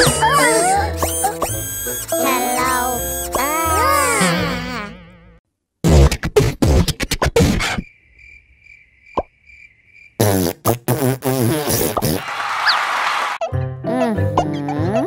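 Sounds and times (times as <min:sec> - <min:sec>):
cartoon mouth sounds: 0:00.0 - 0:07.8, 0:10.2 - 0:12.2, 0:13.8 - 0:15.0
crickets chirping: 0:07.8 - 0:10.2.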